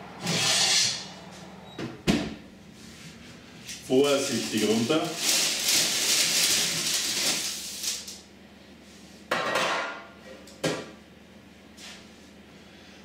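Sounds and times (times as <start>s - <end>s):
baking paper scraping on tray: 3.9s - 8.1s.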